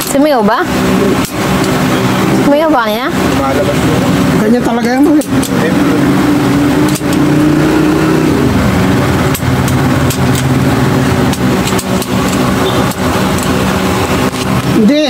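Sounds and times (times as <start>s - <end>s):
metal parts clicking: 0.0s - 0.3s, 4.8s - 5.6s, 6.8s - 7.3s, 9.3s - 10.6s, 11.2s - 14.7s
engine hum: 0.0s - 15.0s.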